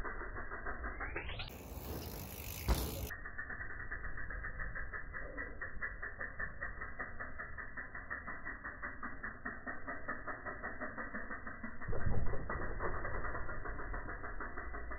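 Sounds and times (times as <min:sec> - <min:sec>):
fast ticking: 0:00.4 - 0:11.8
bike landing thud on dirt: 0:01.5 - 0:03.1.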